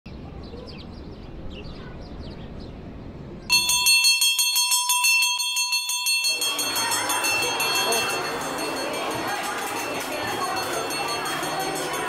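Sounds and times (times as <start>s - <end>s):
metal bell ringing rapidly: 3.5s - 12.0s.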